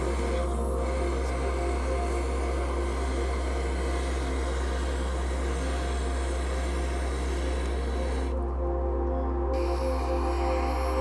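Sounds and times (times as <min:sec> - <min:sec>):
camping stove hissing: 0:00.0 - 0:08.4.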